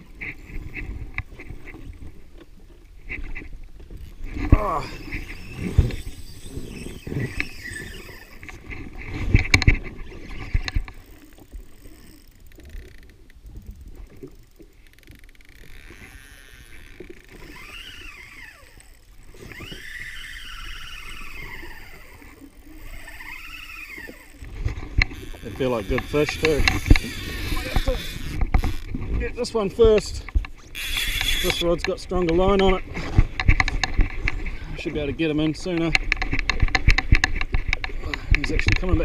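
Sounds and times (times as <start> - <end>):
fishing reel whining: 3.9 - 13.6, 14.4 - 29.0, 30.6 - 31.8.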